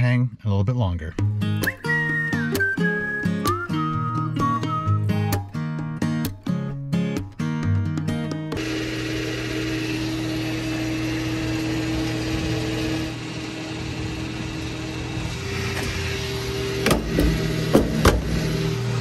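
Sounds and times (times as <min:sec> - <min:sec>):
fuel flowing: 0:08.6 - 0:19.0
gas pump humming: 0:08.6 - 0:19.0
nozzle clunks: 0:16.8 - 0:18.4.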